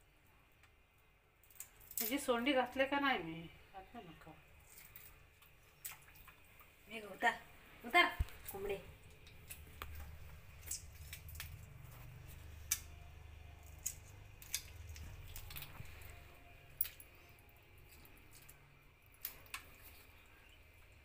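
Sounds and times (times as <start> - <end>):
faint low hum: 0.0 - 21.0
prawn shells snapping: 1.4 - 2.2, 8.2 - 13.0, 13.6 - 15.8, 16.8 - 17.3, 17.9 - 20.2.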